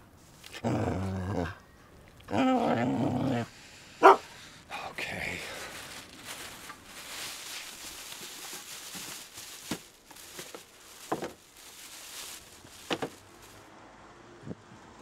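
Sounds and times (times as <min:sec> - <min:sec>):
plastic bags rustling: 0:04.0 - 0:13.7.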